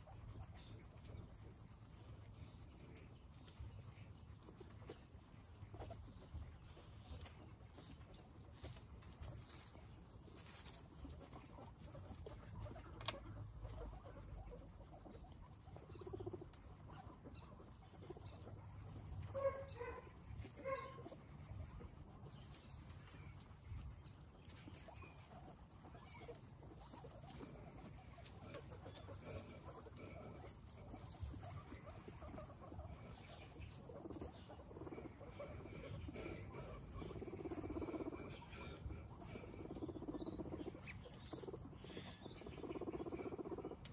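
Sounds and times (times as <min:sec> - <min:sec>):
guinea pig squeaks: 0:00.0 - 0:43.9
guinea pigs chewing: 0:00.0 - 0:43.9
rustles in straw: 0:06.6 - 0:43.9.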